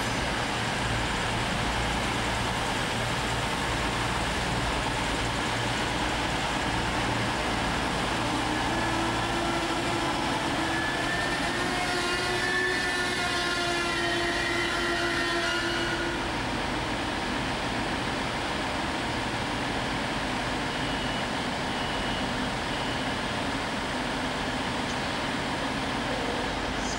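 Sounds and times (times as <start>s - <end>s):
rising whine: 0.0s - 16.4s
diesel train engine drone: 0.0s - 26.9s.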